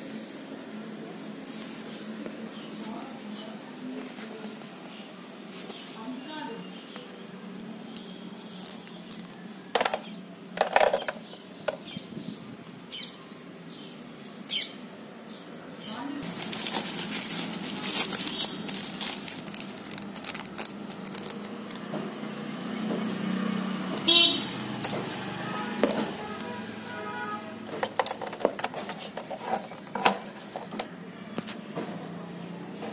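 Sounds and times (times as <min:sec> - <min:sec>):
plastic wrapping crinkling: 0:07.9 - 0:09.5, 0:16.2 - 0:21.9.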